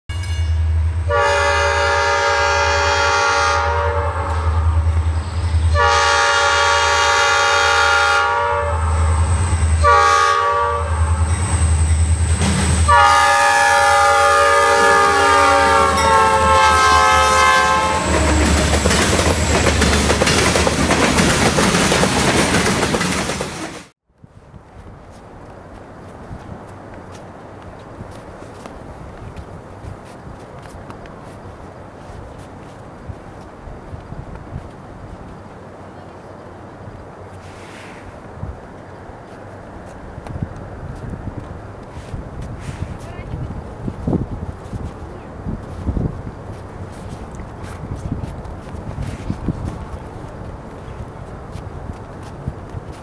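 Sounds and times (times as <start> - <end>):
locomotive air horn blasts: 1.1 - 4.8, 5.7 - 9.1, 9.8 - 11.2, 12.9 - 18.4
wheels rattling on rail: 10.9 - 24.0, 24.6 - 53.0.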